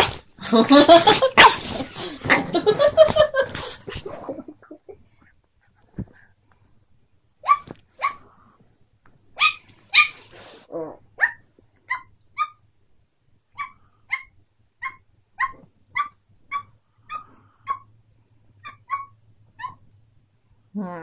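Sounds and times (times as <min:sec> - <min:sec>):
puppy yipping: 0:07.4 - 0:08.2, 0:09.4 - 0:10.2, 0:11.2 - 0:12.6, 0:13.6 - 0:17.9, 0:18.6 - 0:19.8.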